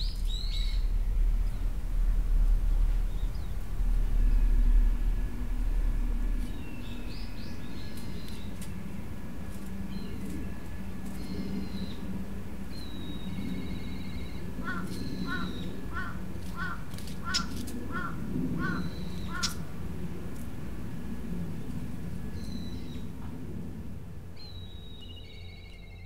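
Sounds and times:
low steady hum: 0.0 - 26.0
crow cawing: 14.6 - 19.6.

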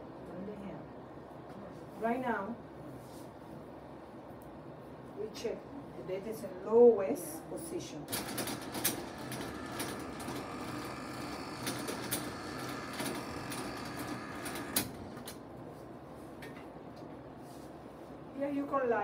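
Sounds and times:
electric bed motor running: 8.1 - 15.5
bed motor stopping click: 8.2 - 15.4.

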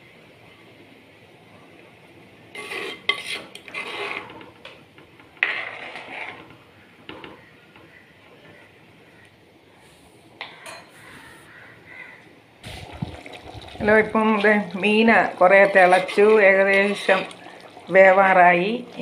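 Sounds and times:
ladle clinking and scraping a pot: 2.5 - 4.7, 5.4 - 7.3, 15.5 - 17.4
curry simmering: 11.0 - 19.0.

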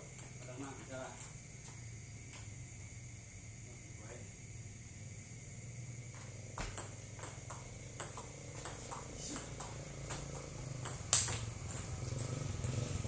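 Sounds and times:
table tennis ball clicks: 6.6 - 12.8.

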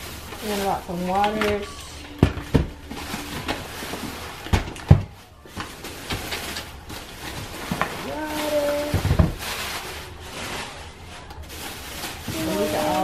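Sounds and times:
handling noise: 0.0 - 13.0
items knocking on surface: 1.1 - 9.5.

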